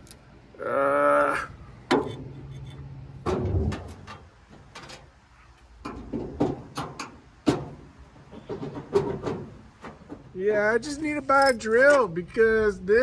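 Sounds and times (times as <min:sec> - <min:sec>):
metal bracket knocking and clicking: 0:05.8 - 0:10.3.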